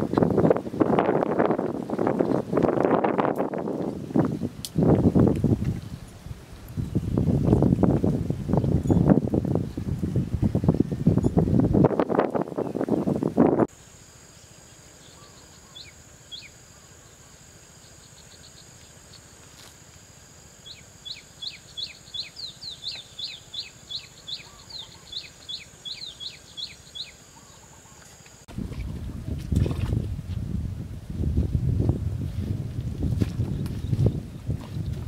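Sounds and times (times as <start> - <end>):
high insect drone: 11.2 - 28.5
small bird chirping: 15.0 - 17.2, 20.6 - 29.0.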